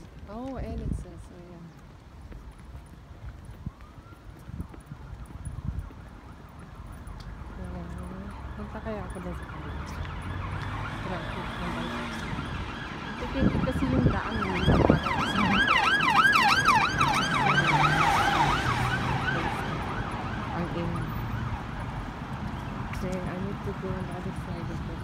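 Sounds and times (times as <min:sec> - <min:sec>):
traffic noise: 0:00.0 - 0:25.0
emergency vehicle siren yelp: 0:02.8 - 0:22.3.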